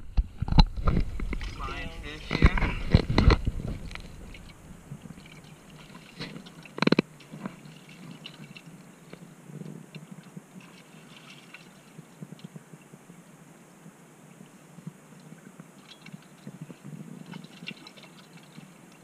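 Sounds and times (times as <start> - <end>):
wet squelches and splashes: 2.7 - 9.2, 10.0 - 12.1, 15.8 - 19.0.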